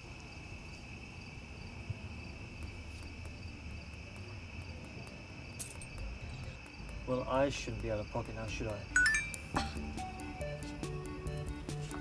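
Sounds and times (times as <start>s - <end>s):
insects trilling: 0.0s - 9.6s.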